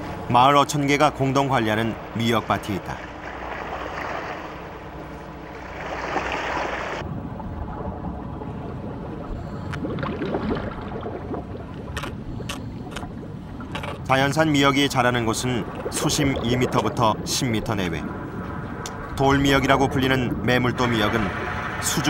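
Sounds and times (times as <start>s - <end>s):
water splashing against boat: 0.1s - 22.0s
low rumble: 6.8s - 14.0s, 15.0s - 22.0s.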